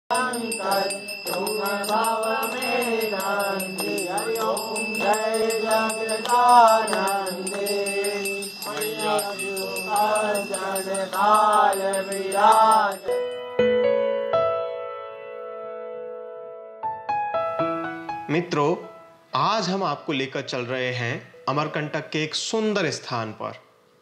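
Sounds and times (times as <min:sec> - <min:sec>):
voices chanting: 0:00.1 - 0:13.3
hand bell ringing: 0:00.1 - 0:13.5
soft piano music: 0:13.1 - 0:24.0.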